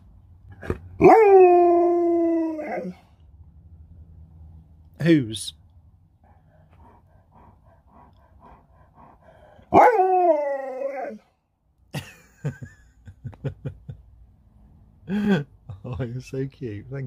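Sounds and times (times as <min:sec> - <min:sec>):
dog howl-like vocalization: 0:01.0 - 0:03.0, 0:09.7 - 0:11.2.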